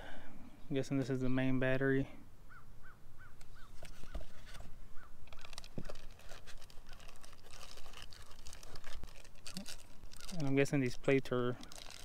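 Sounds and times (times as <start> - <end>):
bird chirping: 2.5 - 6.0
plastic bag crinkling: 5.3 - 12.0.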